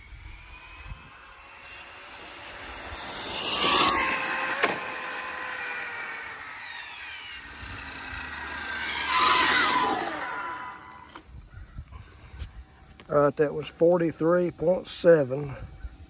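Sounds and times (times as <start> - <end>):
rc car electric motor whining: 0.0 - 11.5.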